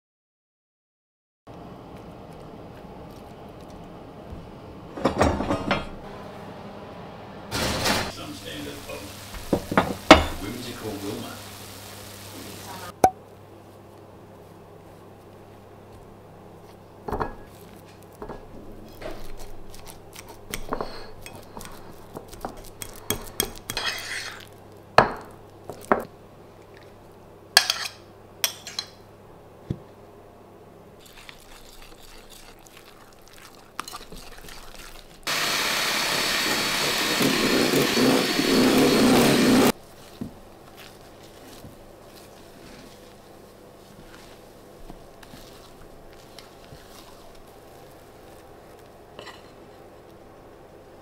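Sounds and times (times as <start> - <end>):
electric mixer whipping: 35.3 - 39.7.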